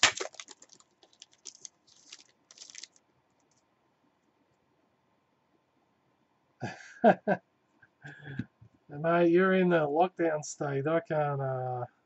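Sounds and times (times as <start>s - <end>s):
foil wrapper crinkling: 0.0s - 3.6s.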